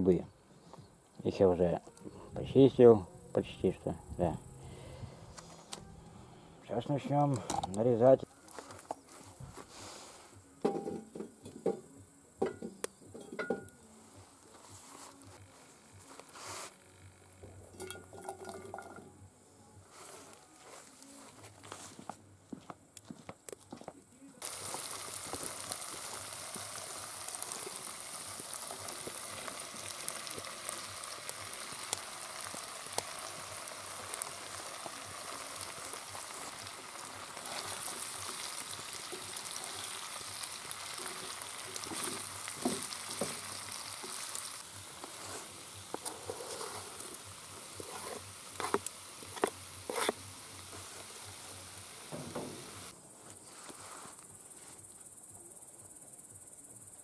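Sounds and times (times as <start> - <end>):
food sizzling in hot oil: 24.4 - 52.9
spatula scraping a pan: 45.1 - 47.1, 47.7 - 50.2.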